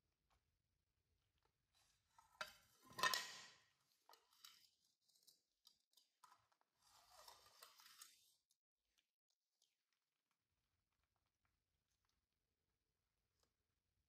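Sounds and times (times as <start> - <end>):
plastic tray scraping on tiles: 2.5 - 3.5, 6.8 - 8.3.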